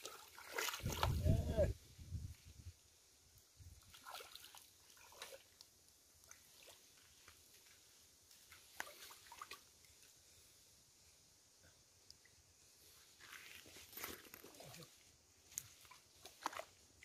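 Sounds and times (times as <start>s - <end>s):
small splashes in stream water: 0.0s - 1.3s, 3.6s - 7.8s, 8.4s - 10.2s, 15.5s - 17.0s.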